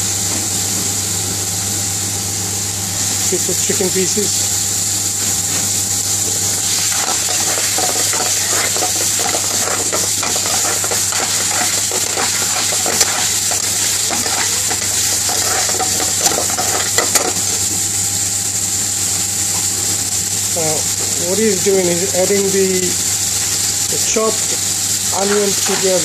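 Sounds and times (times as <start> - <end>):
oil sizzling: 3.1 - 26.0
metal spoon scraping frying pan: 6.6 - 17.6, 24.4 - 26.0.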